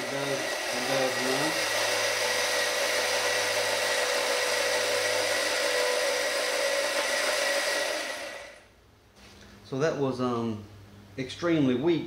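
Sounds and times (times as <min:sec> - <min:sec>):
electric motor running weakly: 0:00.0 - 0:08.6.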